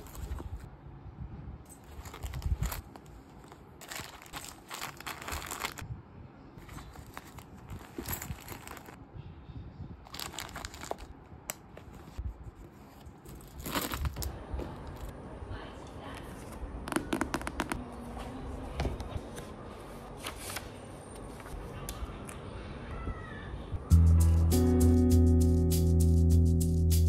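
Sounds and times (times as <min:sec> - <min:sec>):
rustling in handbag: 0:00.0 - 0:00.7, 0:01.7 - 0:05.8, 0:06.6 - 0:09.0, 0:10.0 - 0:15.1.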